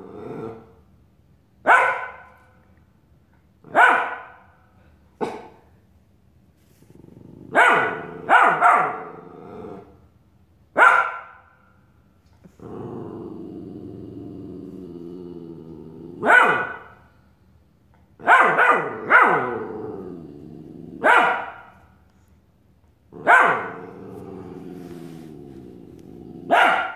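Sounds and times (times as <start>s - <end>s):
puppy growling: 0.0s - 0.8s, 6.7s - 10.0s, 12.4s - 16.8s, 18.8s - 21.2s, 23.1s - 26.9s
puppy barking: 1.6s - 2.4s, 3.7s - 4.6s, 7.5s - 9.1s, 10.8s - 11.5s, 16.2s - 17.0s, 18.2s - 19.6s, 21.0s - 21.8s, 23.2s - 23.9s, 26.5s - 26.9s.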